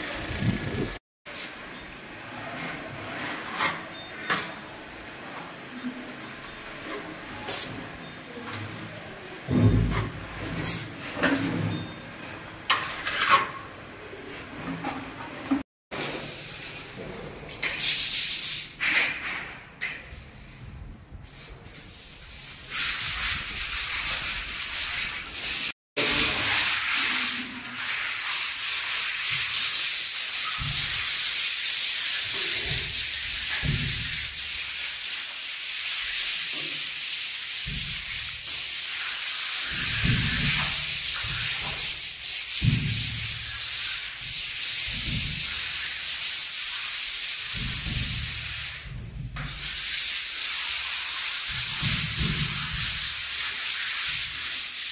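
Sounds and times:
sandpaper scraping wall putty: 21.4s - 54.9s.

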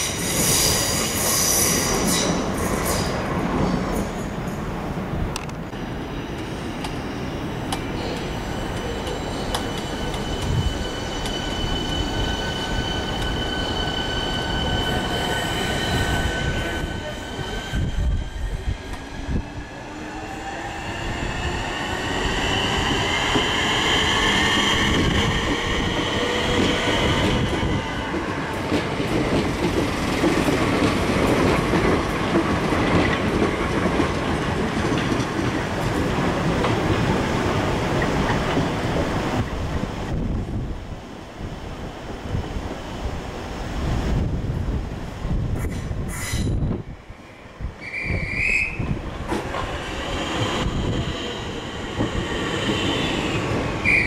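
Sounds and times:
electric train whine: 5.4s - 32.3s.

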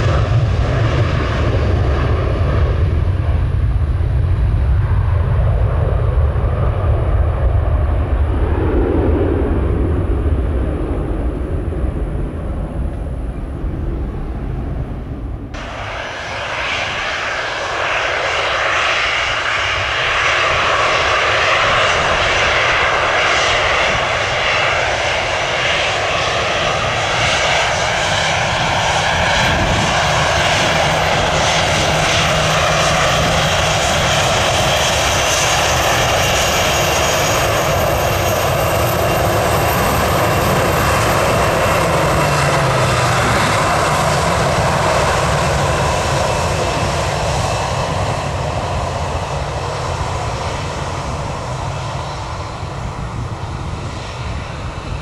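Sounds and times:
low rumble: 0.0s - 18.9s
jet engines roaring at takeoff: 0.0s - 55.0s.

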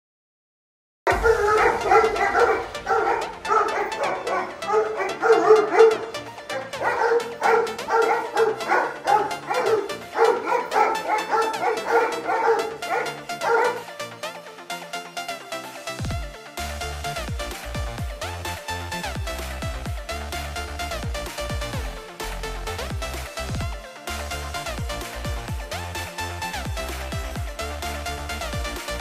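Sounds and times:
dogs barking: 1.1s - 14.4s
background music: 1.1s - 29.0s.

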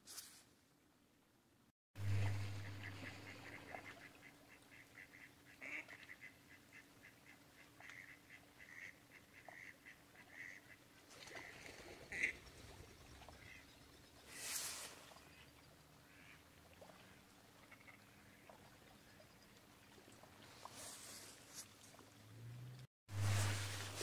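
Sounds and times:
low hum: 2.0s - 4.1s, 22.1s - 24.0s
waterfowl calling: 2.0s - 19.4s.

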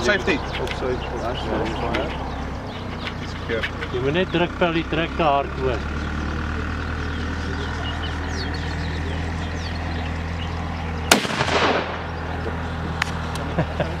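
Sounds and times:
rifle shot with echo: 11.1s - 12.2s.

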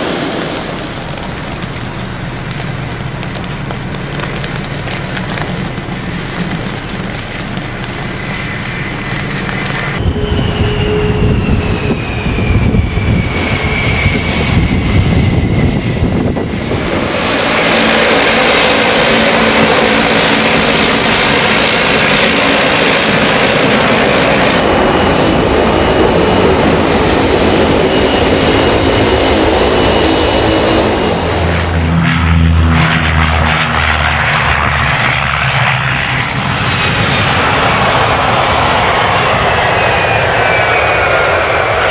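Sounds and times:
jet engines high whine: 0.0s - 41.9s
jet engines taxiing: 0.0s - 41.9s
turboprop engines running: 0.0s - 41.9s
whine sliding down in pitch: 9.0s - 20.3s, 24.2s - 35.2s.

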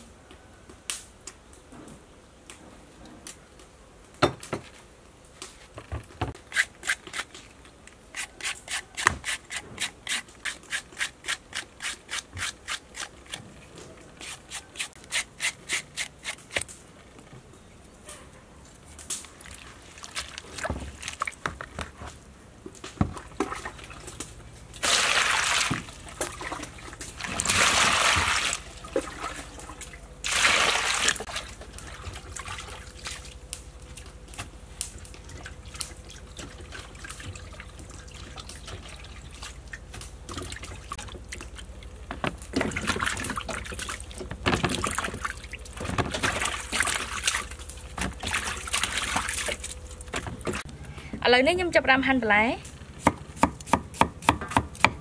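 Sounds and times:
vegetables sloshing in water: 19.4s - 21.4s, 23.1s - 33.4s, 42.4s - 50.7s.

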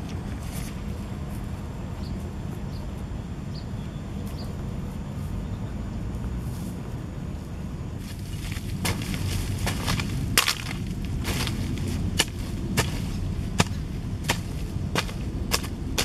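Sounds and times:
low background rumble: 0.0s - 16.0s
hand hoe chopping into soil: 8.1s - 16.0s.

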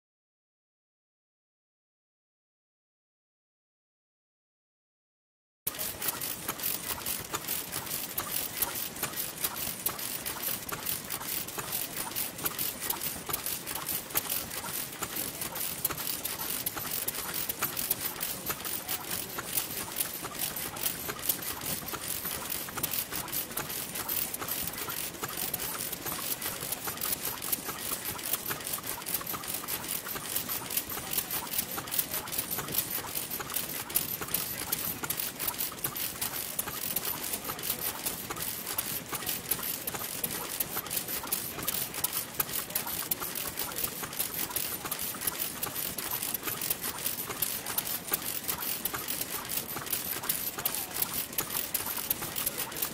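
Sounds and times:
stationary engine ticking: 5.7s - 52.9s.

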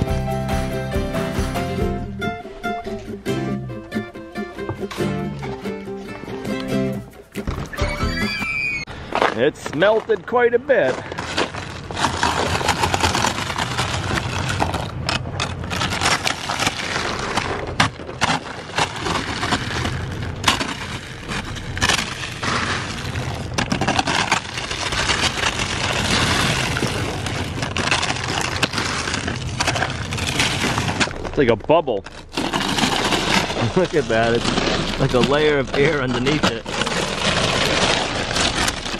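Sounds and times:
ice cracking and crunching: 9.1s - 38.9s
ice scraper scraping windshield: 10.9s - 31.4s, 32.0s - 38.9s.

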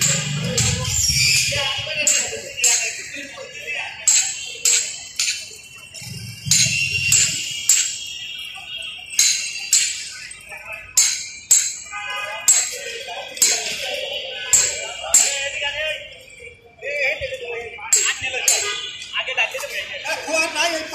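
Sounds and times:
metal striking metal clinks: 0.0s - 16.5s.

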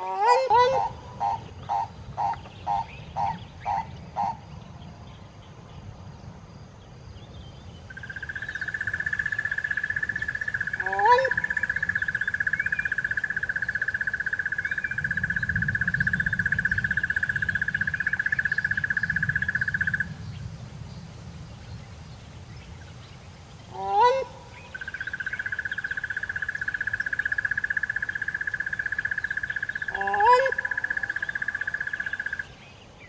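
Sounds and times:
frog trilling: 7.9s - 20.1s, 23.8s - 32.5s.

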